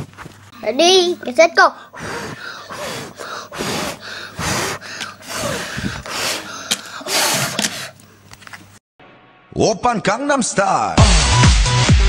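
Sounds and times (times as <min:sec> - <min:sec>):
person gasping and breathing hard: 0:01.7 - 0:08.1.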